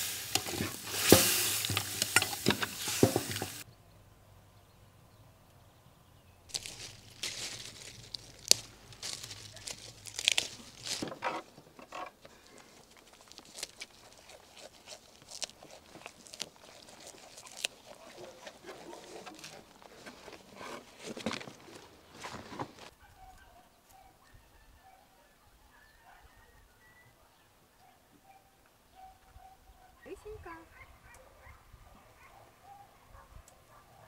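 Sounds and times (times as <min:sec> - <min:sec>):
plant stems snapping and rustling: 0:06.5 - 0:11.0, 0:12.6 - 0:17.7.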